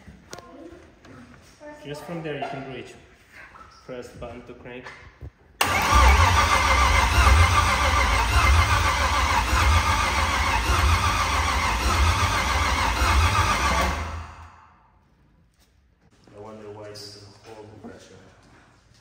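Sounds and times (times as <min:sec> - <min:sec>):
engine cranking on starter: 0:05.6 - 0:14.6.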